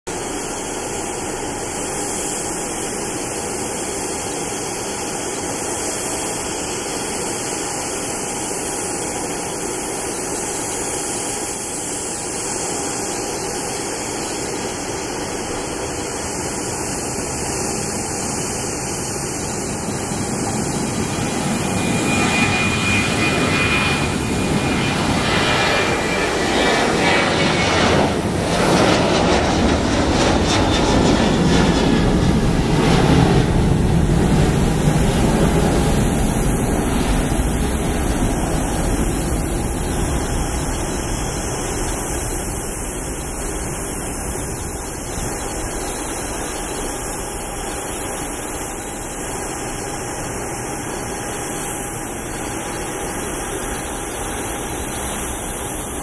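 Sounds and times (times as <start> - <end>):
high fan whine: 0.1 - 56.0
jet engine noise: 0.1 - 56.0.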